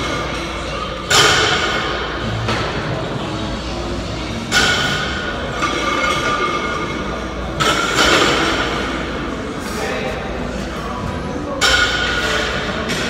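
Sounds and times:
gym weights clanking: 0:00.0 - 0:09.3
weight room background: 0:00.0 - 0:13.0.

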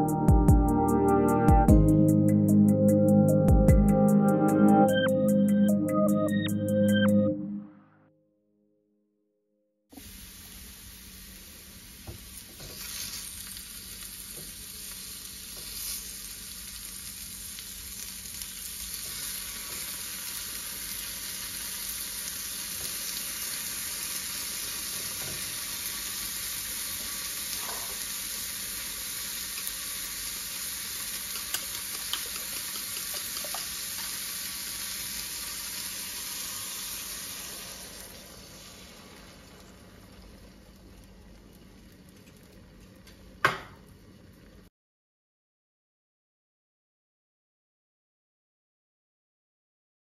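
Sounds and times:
mushrooms sizzling in frying pan: 0:10.0 - 0:40.9.

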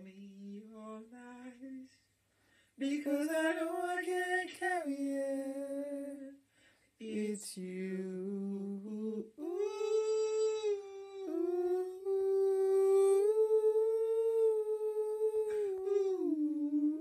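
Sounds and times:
woman singing wordless melody: 0:00.0 - 0:02.0, 0:02.8 - 0:06.4, 0:07.0 - 0:17.0.

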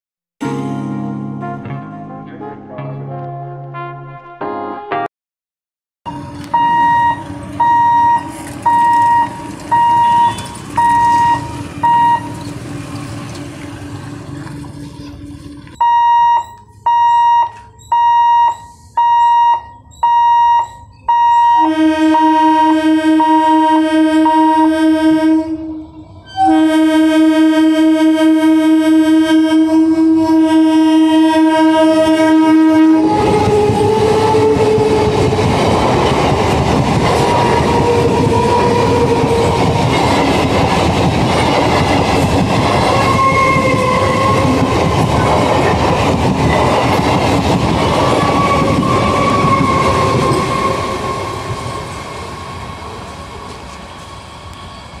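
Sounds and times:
repeated beeping tone: 0:06.1 - 0:12.4, 0:15.7 - 0:21.7
train wheels rushing on rails: 0:06.1 - 0:15.8, 0:32.8 - 0:55.0
train horn blasts: 0:20.3 - 0:35.4, 0:43.0 - 0:44.7, 0:48.4 - 0:51.4.

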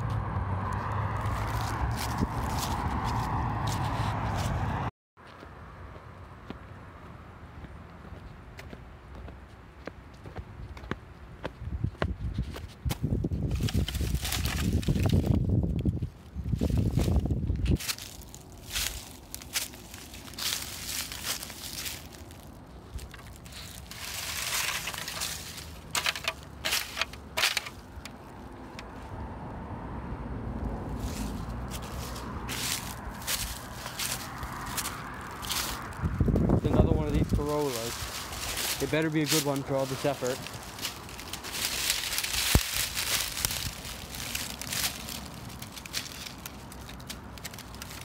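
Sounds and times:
dry leaves rustling and crunching: 0:01.1 - 0:04.8, 0:13.3 - 0:29.1, 0:30.8 - 0:48.0
plastic wheel cover handled: 0:23.0 - 0:28.1.

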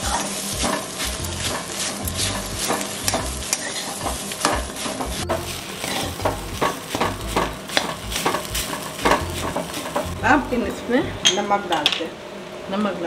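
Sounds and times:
metal spatula scraping a pan: 0:00.0 - 0:10.2
light frying sizzle: 0:00.0 - 0:13.0.

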